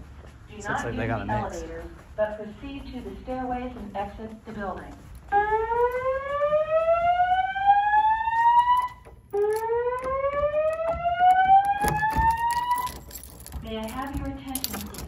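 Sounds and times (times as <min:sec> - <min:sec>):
fire alarm slow whoop tone: 0:05.3 - 0:13.1.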